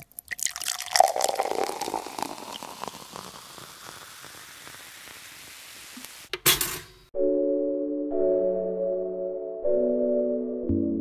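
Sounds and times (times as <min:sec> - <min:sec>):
crackling fizzing hiss: 0:00.0 - 0:06.3.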